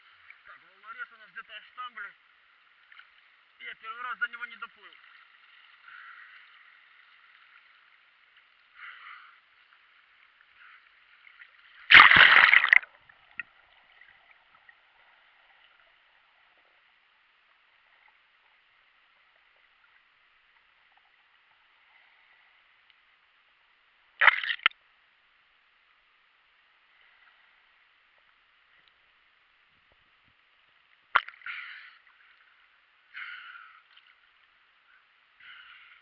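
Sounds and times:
seawater sloshing and splashing: 0:11.2 - 0:16.4
loud splash: 0:11.9 - 0:12.9, 0:24.2 - 0:24.7.

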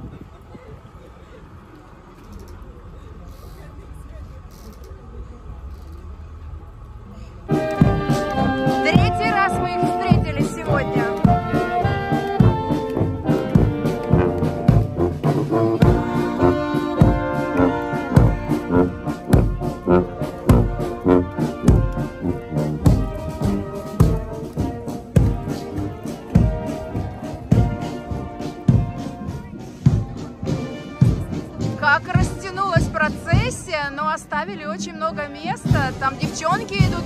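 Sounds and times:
marching band playing: 0:07.4 - 0:37.0
drum beat: 0:07.5 - 0:33.7, 0:35.6 - 0:37.0.

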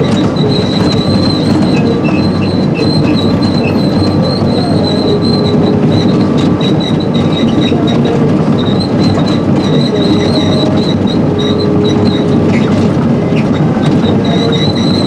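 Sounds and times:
clanking track links: 0:00.0 - 0:15.0
excavator engine and track rumble: 0:00.0 - 0:15.0
high squeal: 0:00.0 - 0:15.0.

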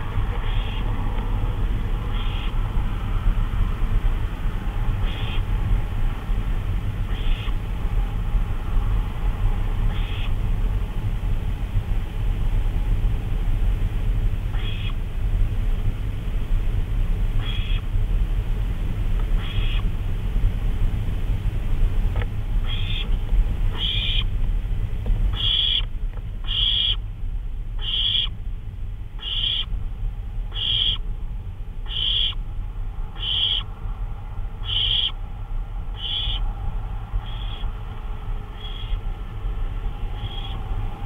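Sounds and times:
steady low rumble: 0:00.0 - 0:41.0
owl calling: 0:00.3 - 0:00.9, 0:02.0 - 0:02.6, 0:05.0 - 0:05.5, 0:07.0 - 0:07.6, 0:09.8 - 0:10.4, 0:14.5 - 0:15.0, 0:17.4 - 0:17.8, 0:19.4 - 0:19.9, 0:22.6 - 0:24.3, 0:25.3 - 0:27.0, 0:27.8 - 0:28.4, 0:29.2 - 0:29.7, 0:30.5 - 0:31.0, 0:31.8 - 0:32.4, 0:33.1 - 0:33.7, 0:34.6 - 0:35.2, 0:35.9 - 0:36.5, 0:37.2 - 0:37.8, 0:38.5 - 0:39.1, 0:40.1 - 0:40.7.

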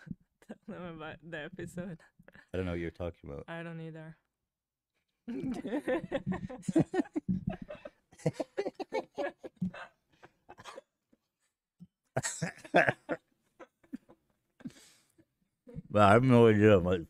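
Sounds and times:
man and woman laughing: 0:05.3 - 0:10.6, 0:12.2 - 0:14.2.

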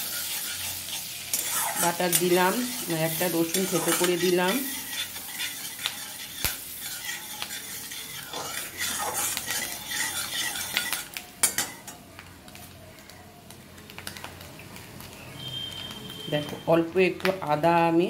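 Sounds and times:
spatula scraping in a wok: 0:00.0 - 0:12.0
butter sizzling: 0:00.0 - 0:18.0.

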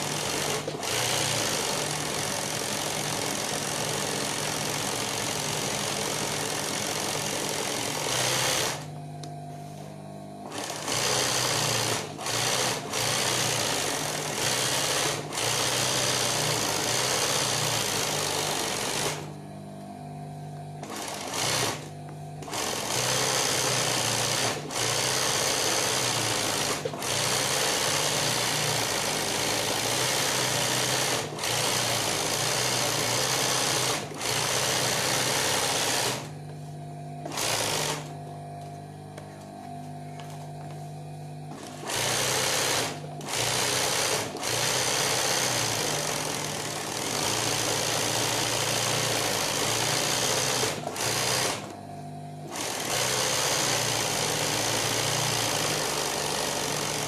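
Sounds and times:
sewing machine stitching: 0:00.0 - 0:08.9, 0:10.4 - 0:19.3, 0:20.8 - 0:36.3, 0:37.2 - 0:38.1, 0:41.5 - 0:51.7, 0:52.4 - 0:57.0
motor low hum: 0:00.0 - 0:14.5, 0:15.2 - 0:27.5, 0:35.8 - 0:44.6, 0:51.6 - 0:52.6.

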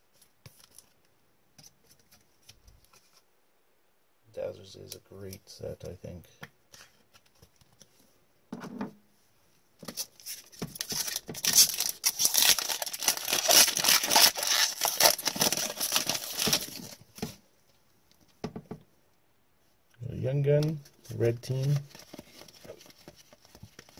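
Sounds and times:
foil wrapper crackling: 0:10.8 - 0:17.0.

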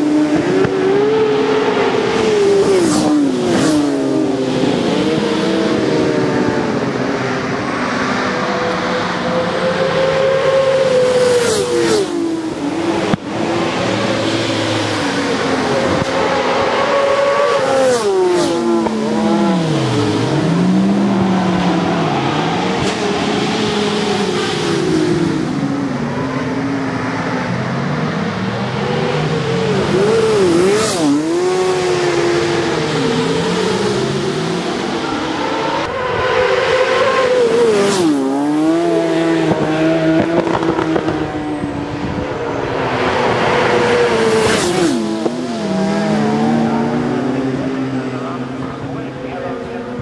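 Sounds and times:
motorcycles passing close by: 0:00.0 - 0:50.0
racing motorcycle engines revving: 0:00.0 - 0:50.0.

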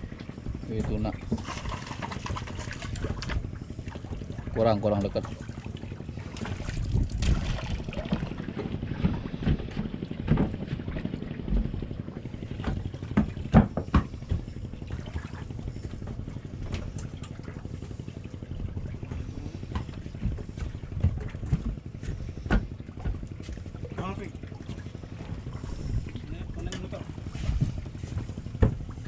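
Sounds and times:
boat engine low rumble: 0:00.0 - 0:29.0
knocks and clatter on deck: 0:08.1 - 0:11.8, 0:12.6 - 0:14.6, 0:19.8 - 0:24.2, 0:27.6 - 0:29.0.

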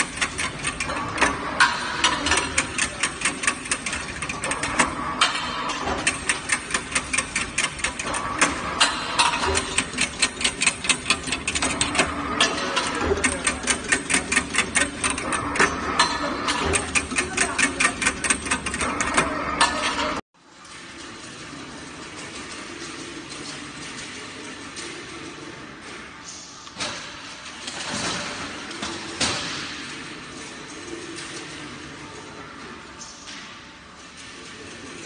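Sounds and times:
weaving machine running: 0:00.0 - 0:20.2
wire crimping machine clicking: 0:00.0 - 0:20.2
mechanical hum: 0:00.0 - 0:35.0.

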